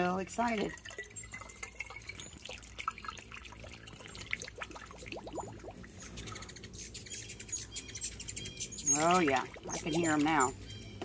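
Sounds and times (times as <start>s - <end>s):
liquid trickling and dripping: 0.0s - 10.6s
rising gurgle: 0.8s - 5.9s.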